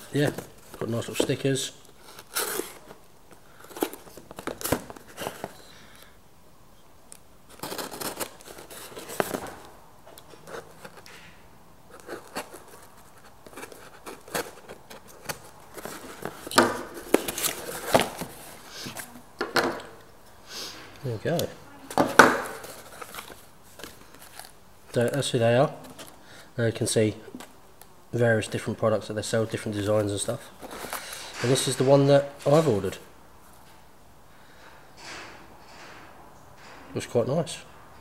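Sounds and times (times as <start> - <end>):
packing material rustling: 0.0 - 6.0, 7.5 - 11.3, 11.9 - 19.2, 21.0 - 26.2, 29.8 - 33.0
cardboard and tape tearing: 2.0 - 3.0, 7.5 - 9.6, 11.9 - 19.2.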